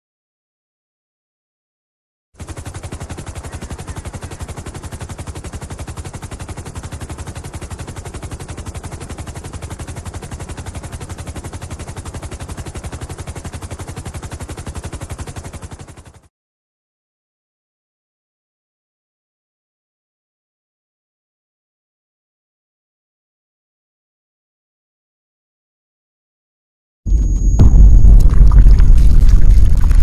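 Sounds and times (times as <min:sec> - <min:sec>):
fast pulsing rattle: 0:02.4 - 0:16.3.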